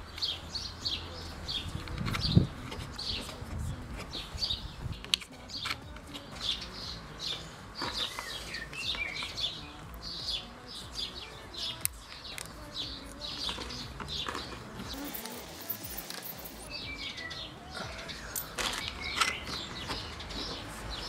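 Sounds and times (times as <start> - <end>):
small birds chirping and singing: 0.0 - 21.0.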